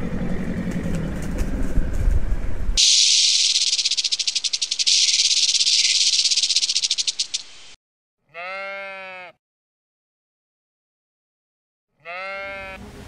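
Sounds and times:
snake rattling buzz: 2.8 - 7.8
sheep bleating: 8.3 - 9.4, 12.0 - 12.8.

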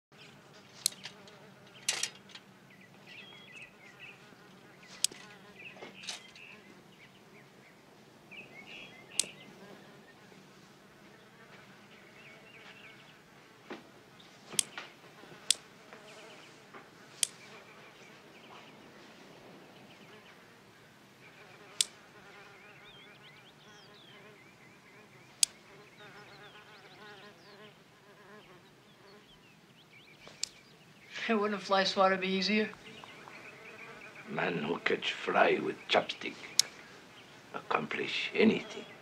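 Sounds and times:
fly buzzing: 0.2 - 6.7, 9.1 - 10.4, 11.1 - 13.8, 14.5 - 18.2, 21.3 - 29.4, 32.7 - 35.0.

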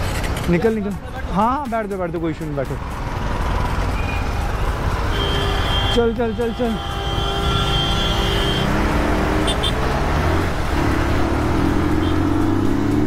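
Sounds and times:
wind and road noise: 0.0 - 13.0
motorcycle engine accelerating: 7.5 - 13.0.

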